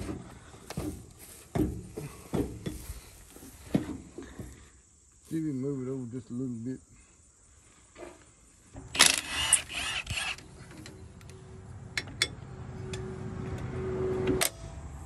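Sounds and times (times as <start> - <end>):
impact wrench rattling bursts: 8.8 - 10.5.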